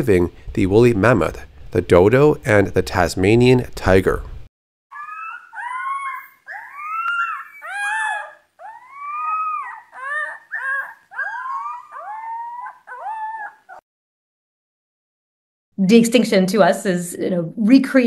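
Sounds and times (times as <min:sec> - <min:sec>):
wolf pup howling: 0:04.9 - 0:13.8.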